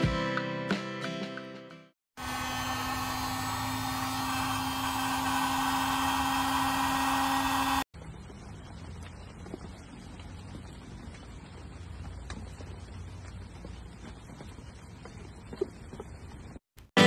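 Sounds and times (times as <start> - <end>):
electric air pump whirring: 2.2 - 7.9.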